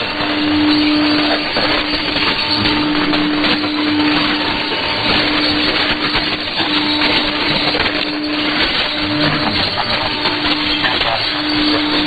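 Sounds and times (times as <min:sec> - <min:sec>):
steady low tone: 0:00.0 - 0:12.0
radio static hiss: 0:00.1 - 0:12.0.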